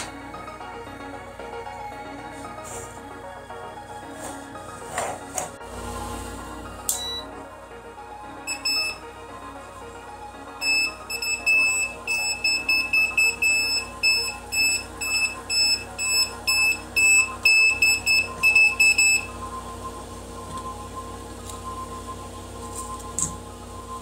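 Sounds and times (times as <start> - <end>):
electronic background music: 0.0 - 24.0
voltage detector pen beeping: 6.9 - 7.3, 8.5 - 9.1, 10.6 - 19.3.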